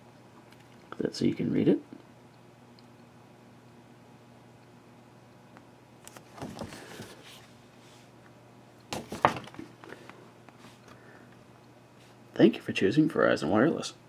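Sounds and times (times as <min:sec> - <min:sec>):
paper pages rustling and flapping: 0:06.0 - 0:07.5.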